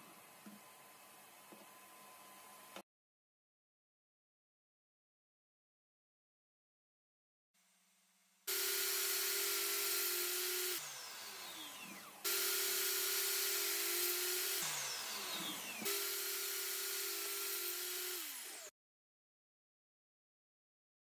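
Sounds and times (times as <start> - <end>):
saw winding down whine: 8.5 - 18.7
table saw running: 8.5 - 18.7.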